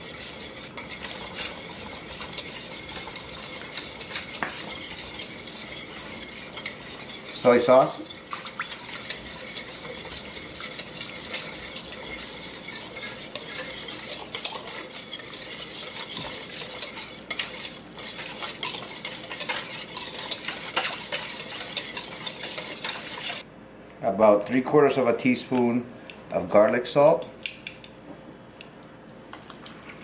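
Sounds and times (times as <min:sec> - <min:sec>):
whisk scraping metal bowl: 0:00.0 - 0:23.4.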